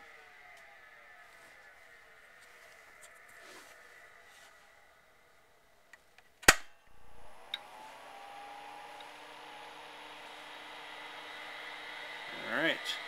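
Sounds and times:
computer fan and hard drive whirring: 0:00.0 - 0:06.1, 0:06.9 - 0:13.0
loud sharp click: 0:06.4 - 0:06.9.

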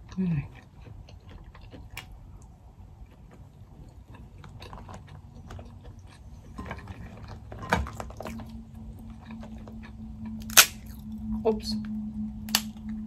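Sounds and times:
soft chewing: 0:00.0 - 0:11.2
crab shell cracking: 0:10.4 - 0:10.8.

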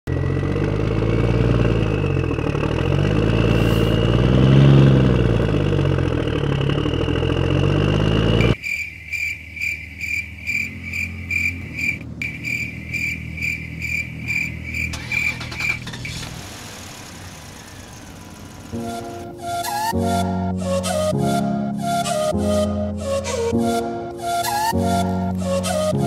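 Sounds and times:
engine revving: 0:00.0 - 0:08.6, 0:10.3 - 0:23.6
insect-like chirp: 0:08.4 - 0:16.1.

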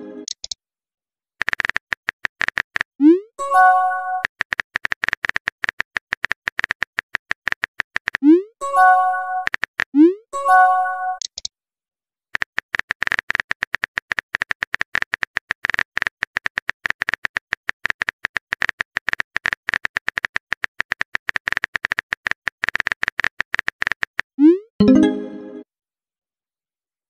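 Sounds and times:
phone keyboard typing clicks: 0:01.4 - 0:02.9, 0:04.2 - 0:08.3, 0:09.4 - 0:10.0, 0:12.4 - 0:24.4.

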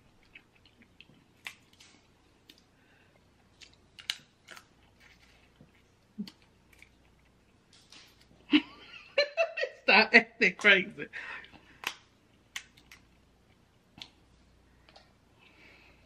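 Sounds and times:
faint eating sounds: 0:00.0 - 0:08.9, 0:09.8 - 0:16.0
crab shells cracking: 0:00.2 - 0:02.7, 0:03.4 - 0:05.3, 0:11.7 - 0:13.3.

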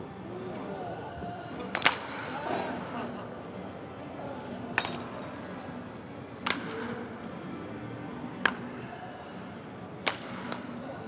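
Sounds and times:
murmur of background noise: 0:00.0 - 0:11.0
baseball bat hitting ball: 0:06.4 - 0:06.9, 0:10.0 - 0:10.6.

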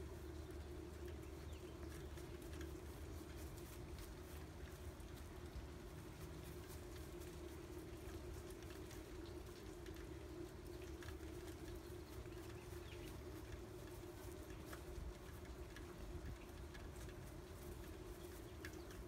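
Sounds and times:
drops ticking: 0:00.0 - 0:19.0
rain pattering softly: 0:00.0 - 0:19.0
steady low hum: 0:00.0 - 0:19.0.

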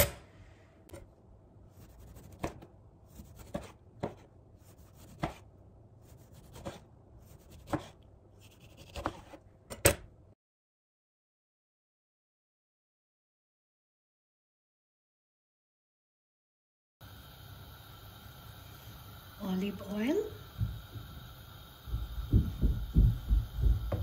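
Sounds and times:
knife slicing vegetables: 0:01.7 - 0:10.1
knife knocking on plastic board: 0:22.3 - 0:24.0.

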